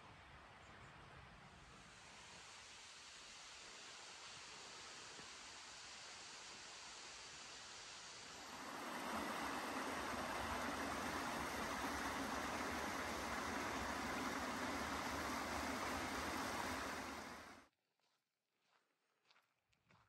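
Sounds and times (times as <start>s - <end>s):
creek running over rocks: 3.2s - 17.6s.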